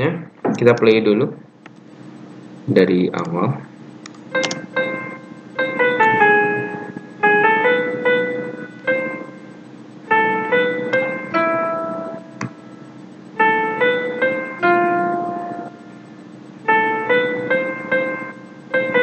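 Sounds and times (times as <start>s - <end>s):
piano melody playback: 4.3s - 12.7s, 13.3s - 16.0s, 16.6s - 19.0s.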